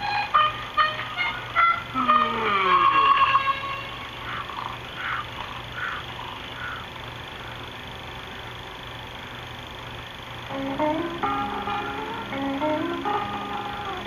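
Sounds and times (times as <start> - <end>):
music: 0.0 - 4.0, 10.5 - 14.0
soundtrack hum and hiss: 0.0 - 14.0.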